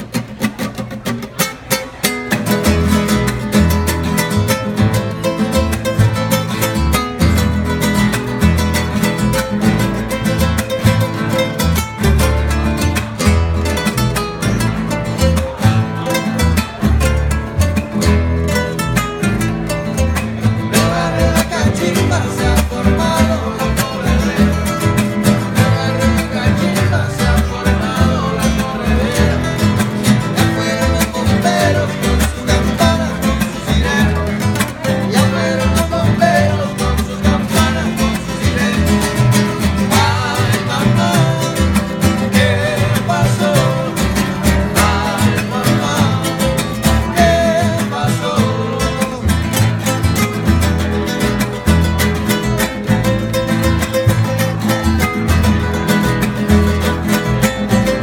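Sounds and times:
strummed classical guitars: 0.0s - 58.0s
upright bass plucked: 0.0s - 58.0s
man singing: 19.6s - 50.9s.

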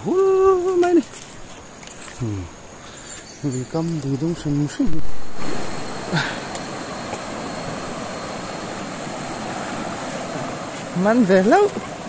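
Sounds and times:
river rushing over rocks: 4.9s - 12.0s.

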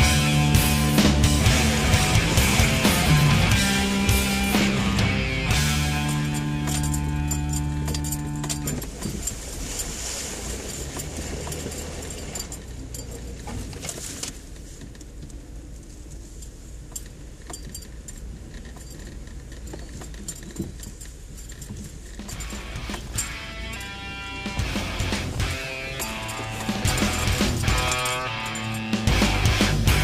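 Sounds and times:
background music: 0.0s - 8.7s, 22.4s - 30.0s
low engine drone: 0.0s - 9.9s, 22.4s - 30.0s
rattles and clicks: 0.0s - 30.0s.

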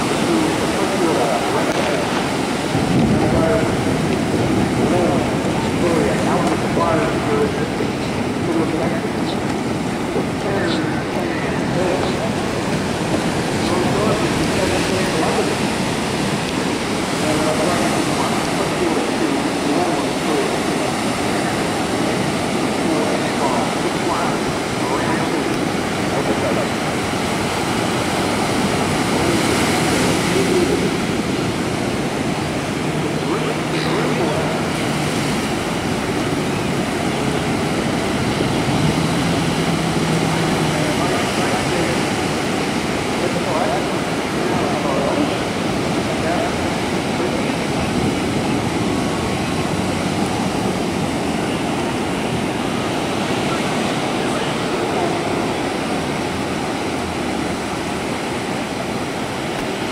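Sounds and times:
ocean waves breaking: 0.0s - 59.9s.

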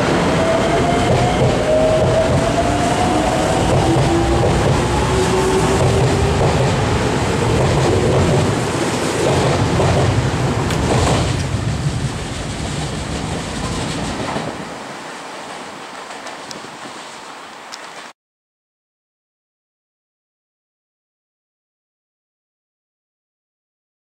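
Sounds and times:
electric train pulling out: 0.0s - 11.6s.

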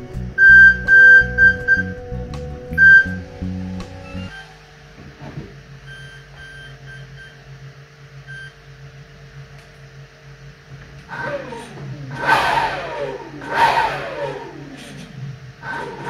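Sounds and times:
fans spinning up with a whine: 0.0s - 16.0s
steady low hum: 0.0s - 16.0s
short high beeps: 0.4s - 2.0s, 2.8s - 3.2s.

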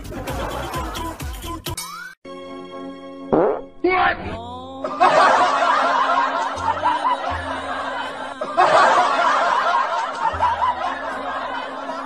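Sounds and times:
people snickering and giggling: 0.0s - 1.5s, 4.9s - 12.0s.

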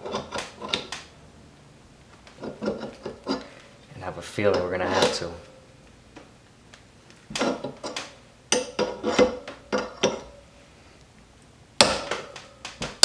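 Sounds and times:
metal tools clanking: 2.4s - 3.6s, 4.4s - 5.4s, 7.3s - 10.4s.

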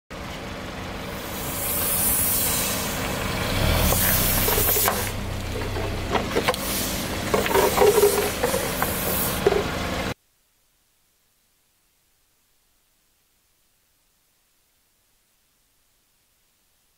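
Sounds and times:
car rumble: 0.2s - 10.2s
air hissing out of toys: 1.0s - 5.2s, 6.4s - 9.7s.

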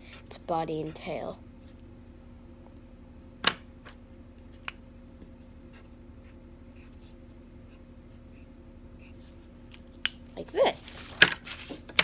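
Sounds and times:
steady low hum: 0.0s - 12.0s
marker scratching on paper: 5.7s - 9.4s.

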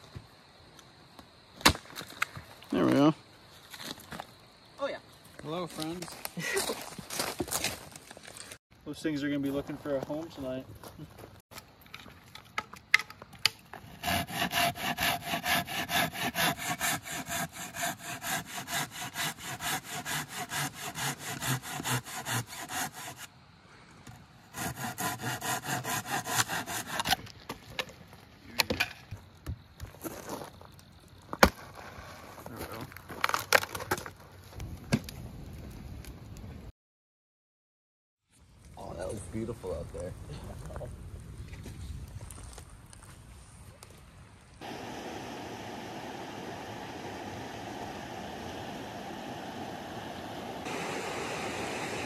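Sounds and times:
pruning saw rasping through log: 13.8s - 23.3s, 24.5s - 27.2s
campfire crackling and popping: 27.8s - 31.9s, 33.0s - 36.6s, 38.5s - 52.0s.

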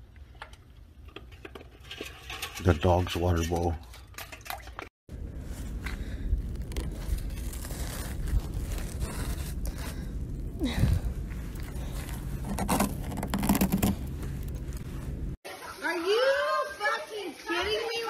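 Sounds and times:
steady low rumble: 5.1s - 15.4s
hand scraping ice on windshield: 6.6s - 10.8s, 11.4s - 15.1s.

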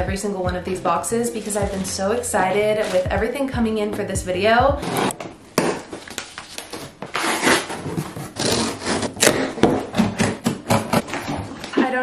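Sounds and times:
cardboard scraping and rubbing: 1.2s - 3.2s, 4.8s - 5.2s, 5.8s - 11.9s.

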